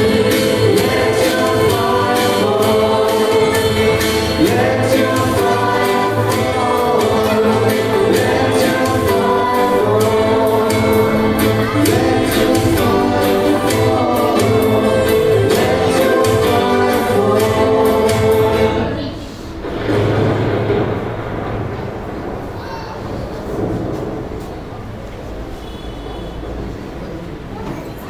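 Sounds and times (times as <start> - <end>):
choir singing gospel song: 0.0 - 19.0.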